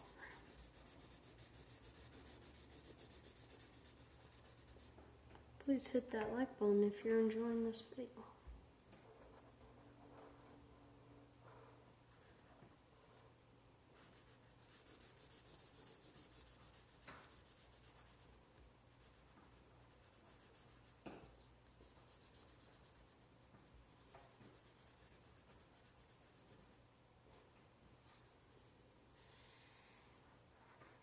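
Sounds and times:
marker scribbling on paper: 0.0s - 5.0s, 14.0s - 26.8s.

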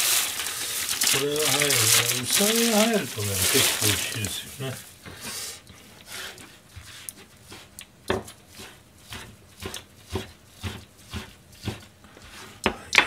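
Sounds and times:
knife chopping on cutting board: 7.5s - 11.9s.

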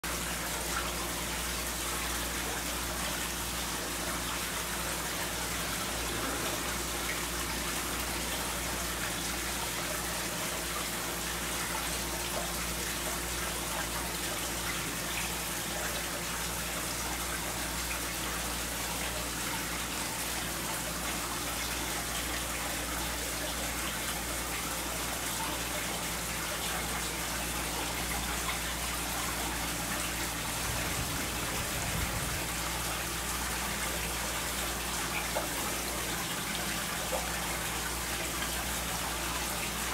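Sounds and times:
water splashing into fish tank: 27.0s - 39.9s.

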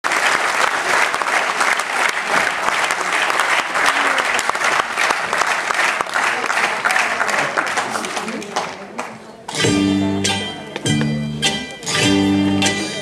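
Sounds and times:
audience applauding: 0.0s - 9.3s.

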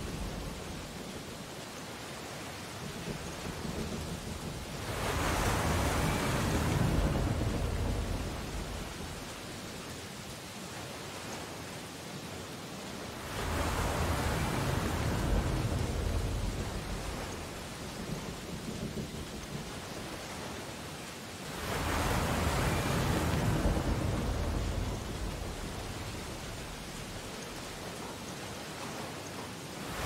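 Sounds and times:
waves breaking on shore: 0.0s - 30.0s.

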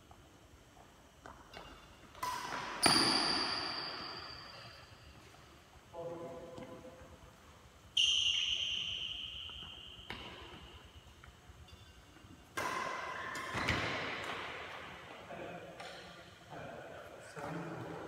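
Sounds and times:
racket hitting shuttlecock: 1.2s - 4.5s, 8.8s - 11.9s, 12.5s - 16.3s
shoes squeaking on court: 1.4s - 5.5s, 8.0s - 12.6s.

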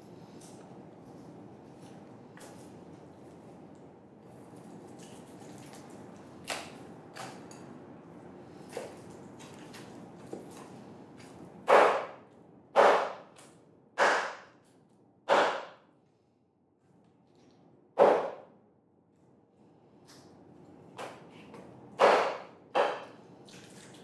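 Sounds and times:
knife chopping on wooden board: 11.7s - 12.2s, 12.8s - 13.3s, 14.0s - 14.5s, 15.3s - 15.8s, 18.0s - 18.4s, 21.0s - 23.2s.

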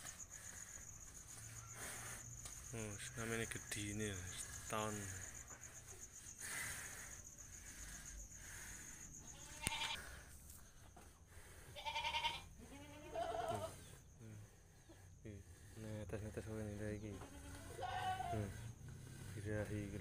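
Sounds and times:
crickets trilling: 0.0s - 20.0s
livestock bleating: 9.2s - 10.1s, 11.8s - 13.8s, 17.1s - 18.6s.

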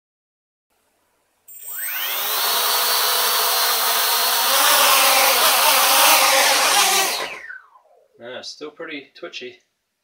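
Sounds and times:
quadcopter motors whirring: 1.5s - 7.8s.

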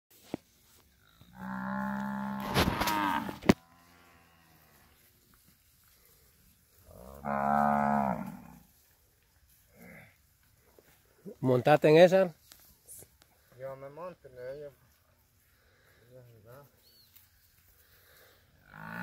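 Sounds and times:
cattle mooing: 1.3s - 4.7s, 6.9s - 8.6s
brief crackle: 2.3s - 3.6s.

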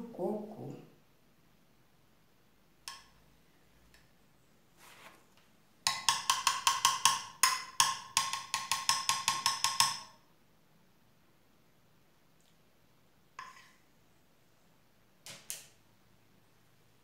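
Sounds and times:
fork tapping glass dish: 2.9s - 3.2s, 5.8s - 10.1s.

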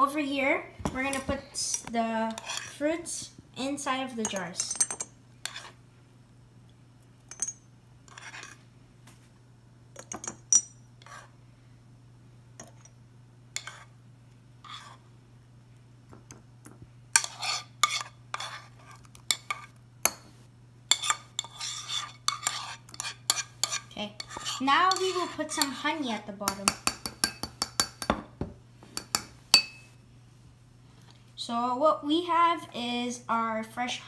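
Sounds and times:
spoon scraping frying pan: 1.7s - 2.8s, 5.4s - 5.8s, 8.1s - 8.6s, 11.0s - 11.3s, 13.6s - 13.9s, 14.6s - 15.0s, 17.2s - 19.7s, 20.9s - 28.0s
spoon clinking against glass jars: 26.5s - 28.1s, 29.0s - 29.9s.

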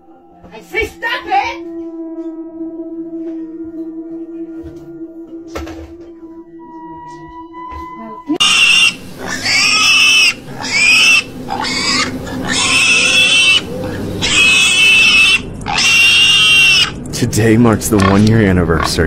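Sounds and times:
pig squealing: 8.4s - 17.0s, 17.9s - 19.0s.

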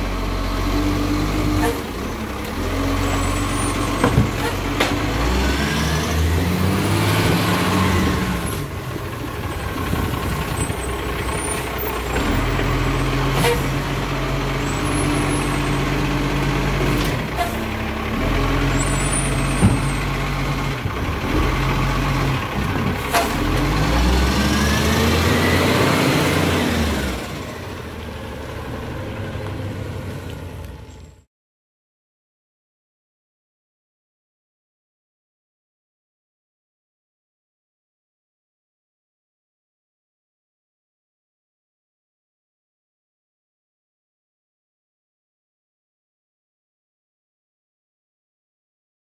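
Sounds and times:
garbage truck diesel engine revving: 0.0s - 31.0s.

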